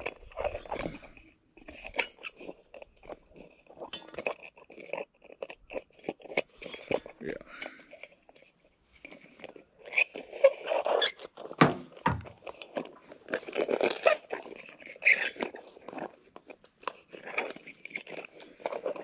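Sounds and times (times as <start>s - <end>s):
heat lamp clicks and knocks: 11.6s - 12.4s.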